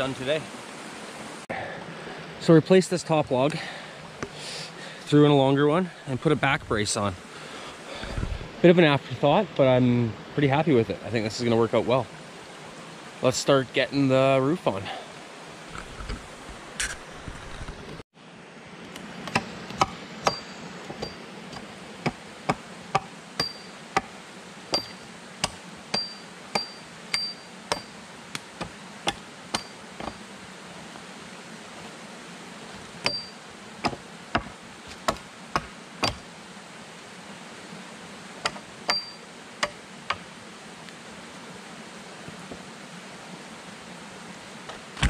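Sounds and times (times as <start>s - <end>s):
axe chopping wood: 19.3s - 30.2s, 33.0s - 36.2s.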